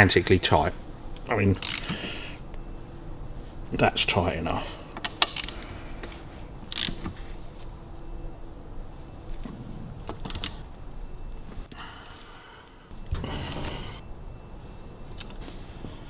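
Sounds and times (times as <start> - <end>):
metal tool clicks: 1.6 - 2.0, 5.0 - 5.6, 6.7 - 7.1.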